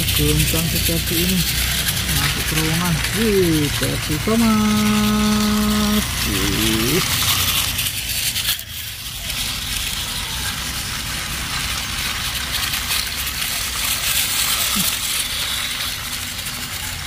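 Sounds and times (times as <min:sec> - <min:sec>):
toy trains rattling whir: 0:00.0 - 0:17.0.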